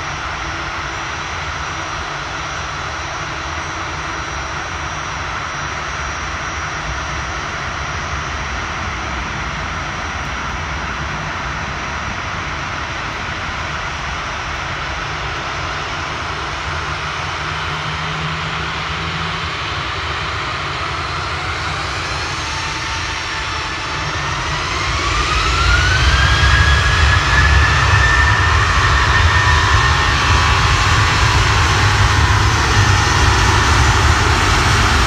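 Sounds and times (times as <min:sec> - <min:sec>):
jet engines spooling up: 0:00.0 - 0:35.0.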